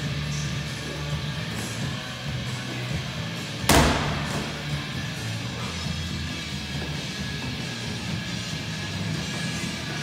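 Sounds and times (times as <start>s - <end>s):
medicine ball thud: 3.7s - 5.0s.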